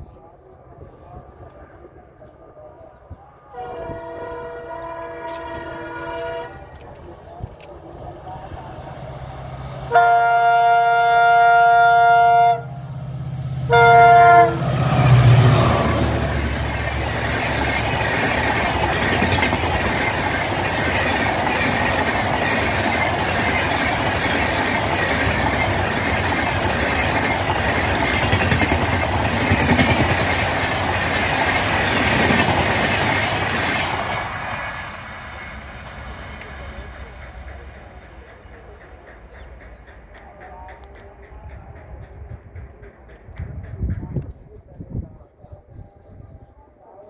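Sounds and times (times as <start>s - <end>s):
diesel locomotive engine noise: 0.0s - 47.0s
locomotive horn: 3.5s - 6.8s, 9.9s - 12.9s, 13.6s - 16.3s
train wheels clacking over rails: 4.3s - 44.7s.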